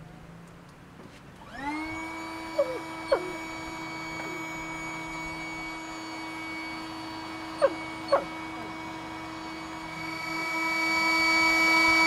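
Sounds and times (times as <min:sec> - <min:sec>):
steady mechanical hum: 0:00.0 - 0:12.0
dog yelping: 0:02.6 - 0:03.4, 0:07.6 - 0:08.4.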